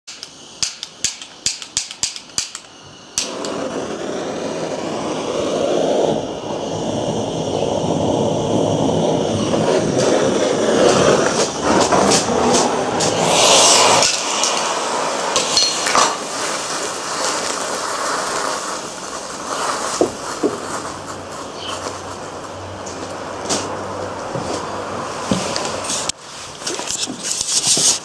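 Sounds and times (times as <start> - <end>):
gas torch igniter clicking: 0.1 - 4.2, 9.4 - 23.2
gas torch hissing: 0.1 - 28.0
thermite crackling and fizzing: 0.1 - 28.0
steady low rumble: 4.7 - 25.8.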